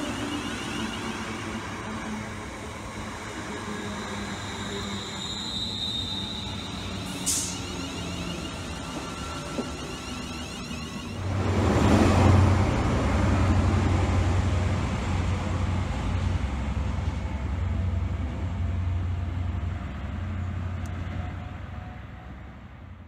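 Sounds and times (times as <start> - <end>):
diesel train engine drone: 0.0 - 23.0
wheel and track rumble: 6.2 - 22.4.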